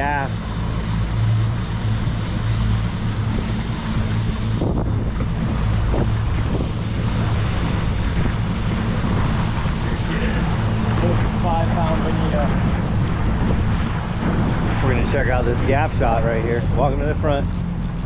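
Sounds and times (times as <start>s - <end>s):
boat engine humming: 0.0s - 18.0s
wind noise on microphone: 0.0s - 18.0s.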